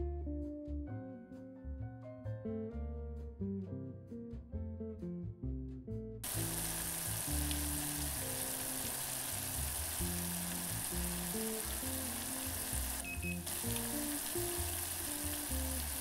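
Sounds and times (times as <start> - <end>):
soft background music: 0.0 - 16.0
syrup boiling in a saucepan: 6.2 - 16.0.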